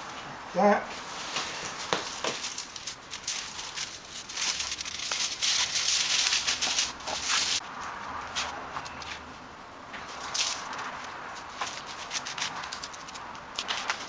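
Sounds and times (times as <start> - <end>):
aluminium foil crinkling: 1.2 - 7.6, 10.1 - 14.0
cardboard cracking as folded: 1.3 - 7.6, 10.1 - 14.0
scissors cutting foil: 1.7 - 7.6, 10.2 - 14.0.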